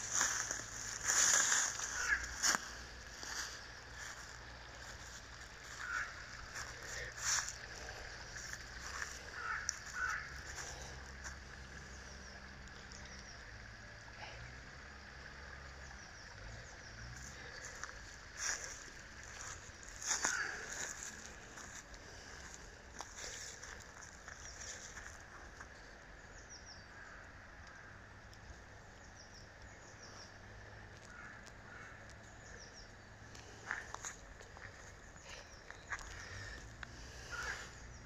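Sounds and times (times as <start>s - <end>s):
footsteps in dry leaves: 0.0s - 11.4s, 17.2s - 25.3s
bird calling: 0.0s - 13.5s, 15.8s - 27.9s, 29.0s - 38.0s.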